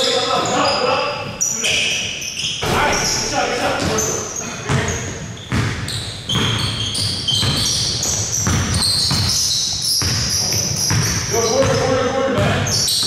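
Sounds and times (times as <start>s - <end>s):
sneakers squeaking: 0.0s - 13.0s
basketball bouncing on floor: 5.5s - 13.0s.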